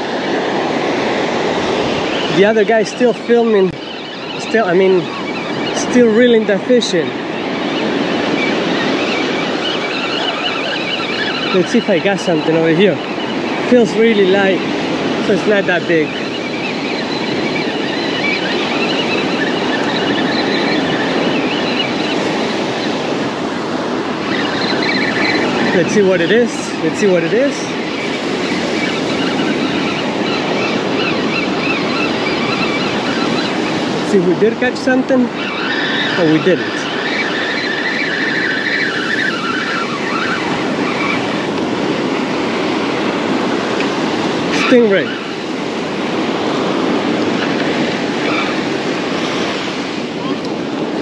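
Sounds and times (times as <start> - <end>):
breaking surf: 0.0 - 51.0
wind: 0.0 - 51.0
fishing reel squealing: 1.7 - 42.7, 44.0 - 45.5, 46.5 - 50.5
high squeak: 7.4 - 13.3, 35.4 - 41.3.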